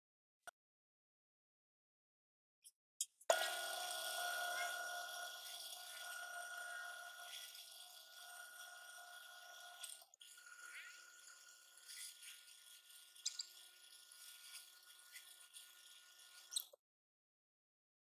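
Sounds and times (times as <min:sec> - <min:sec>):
lathe whining: 0:03.3 - 0:16.5.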